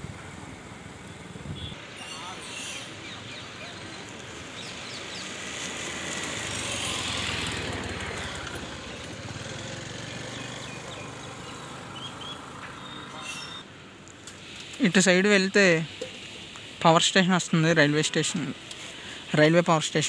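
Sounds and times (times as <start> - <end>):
vehicle engine humming: 0.0 - 1.8, 3.6 - 15.0.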